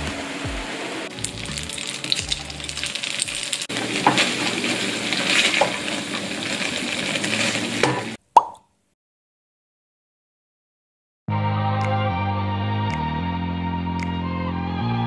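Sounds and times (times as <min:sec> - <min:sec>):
background music: 0:00.0 - 0:03.6, 0:11.3 - 0:15.0
dumplings sizzling in oil: 0:00.2 - 0:08.2
batter being stirred: 0:01.2 - 0:08.2.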